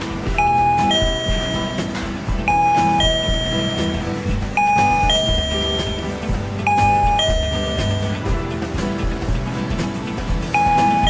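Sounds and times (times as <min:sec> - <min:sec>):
doorbell ding-dong chime: 0:00.3 - 0:08.2, 0:10.6 - 0:11.0.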